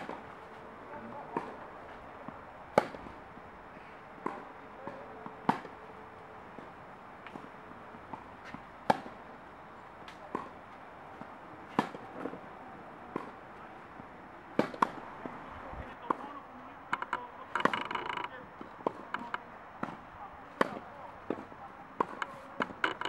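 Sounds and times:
tennis ball bouncing on court: 0:00.0 - 0:00.3, 0:01.3 - 0:01.6, 0:02.2 - 0:03.2, 0:04.2 - 0:05.8, 0:06.4 - 0:09.3, 0:10.0 - 0:12.5, 0:13.1 - 0:15.4, 0:16.9 - 0:23.0
racket hitting tennis ball: 0:00.0 - 0:00.6, 0:01.3 - 0:01.6, 0:02.2 - 0:03.2, 0:04.1 - 0:05.8, 0:06.4 - 0:09.3, 0:10.0 - 0:12.4, 0:13.1 - 0:13.5, 0:14.6 - 0:15.4, 0:16.9 - 0:23.0.

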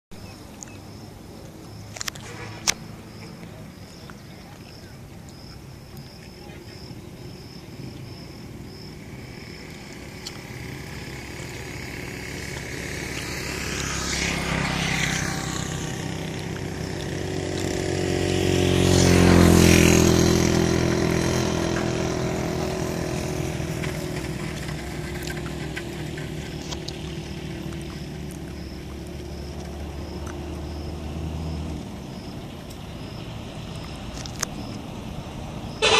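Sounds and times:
vehicle engine passing: 0:00.2 - 0:35.9.

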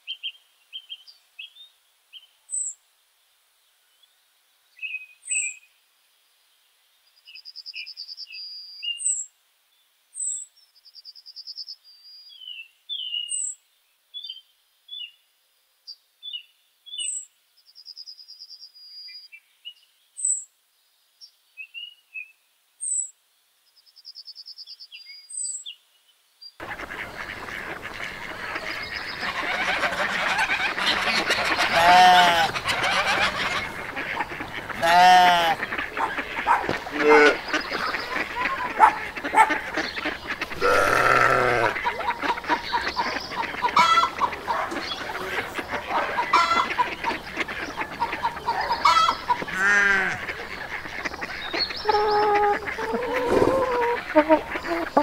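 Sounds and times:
birds calling: 0:26.6 - 0:55.0
drawn-out animal calls: 0:26.6 - 0:55.0
farmyard ambience: 0:26.6 - 0:55.0.

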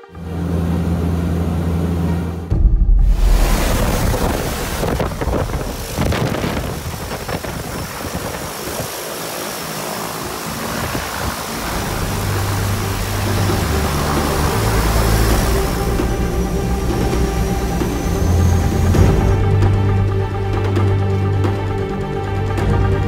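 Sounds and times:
music: 0:00.0 - 0:06.6, 0:11.6 - 0:23.0
turboprop engines running: 0:00.0 - 0:23.0
water rushing and splashing: 0:00.0 - 0:23.0
wind buffeting microphone: 0:02.5 - 0:20.2.

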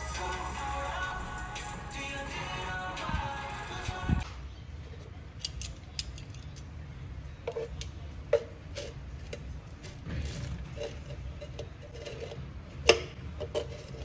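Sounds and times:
music: 0:00.0 - 0:04.4.

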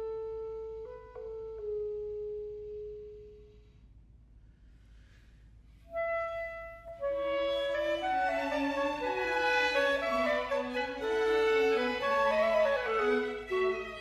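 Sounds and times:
solo clarinet: 0:00.0 - 0:03.4, 0:05.8 - 0:14.0
string orchestra: 0:05.9 - 0:14.0.

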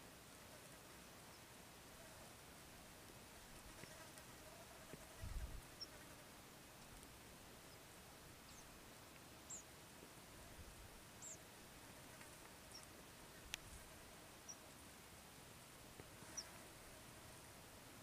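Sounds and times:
faint high-pitched chirps: 0:09.4 - 0:09.7, 0:11.2 - 0:11.4.

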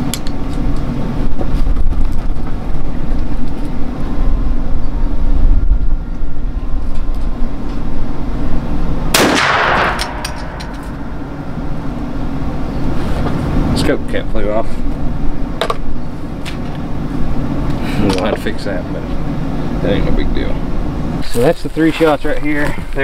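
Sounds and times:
low rumbling noise: 0:00.0 - 0:21.2
pistol gunshot: 0:09.1 - 0:10.9.

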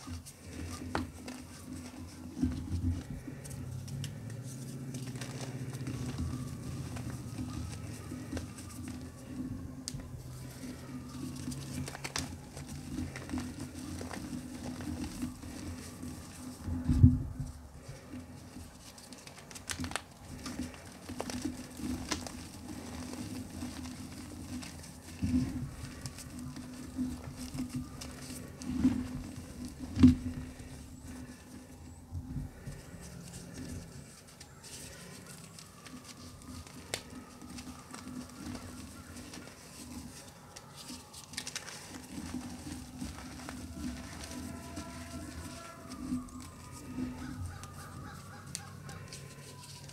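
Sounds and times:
chalk crumbling and crunching: 0:00.0 - 0:17.2, 0:17.8 - 0:49.9
chalk cracking: 0:33.0 - 0:49.9.

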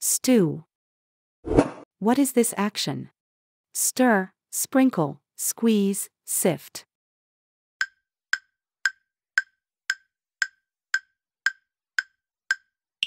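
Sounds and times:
woodblock-like timer ticks: 0:07.8 - 0:12.8.

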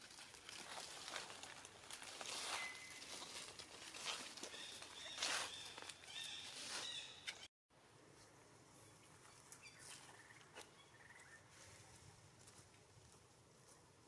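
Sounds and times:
rustles on dry leaves: 0:00.0 - 0:07.2.

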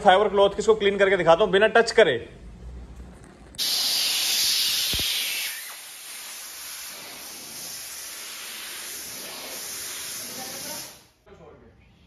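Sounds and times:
compressed air hissing: 0:03.6 - 0:11.2.

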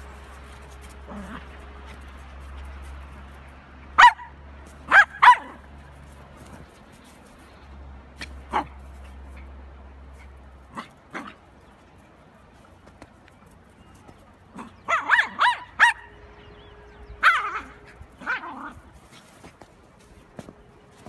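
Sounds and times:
small dogs yapping: 0:10.7 - 0:11.4, 0:14.5 - 0:16.1, 0:17.2 - 0:19.5.

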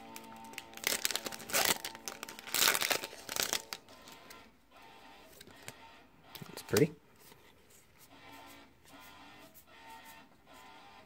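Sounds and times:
foil wrapper crinkling: 0:00.0 - 0:04.2.

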